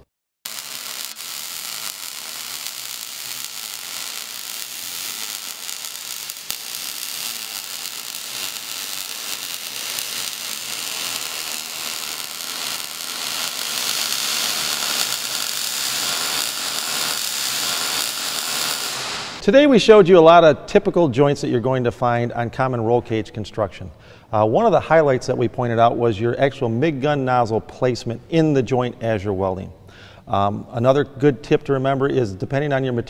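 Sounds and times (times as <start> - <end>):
welding arc crackling: 0.5 - 19.4.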